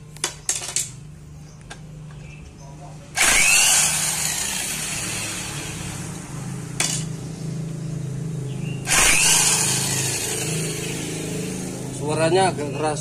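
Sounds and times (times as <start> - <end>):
electric impact wrench hammering: 3.2 - 7.2, 8.8 - 12.0.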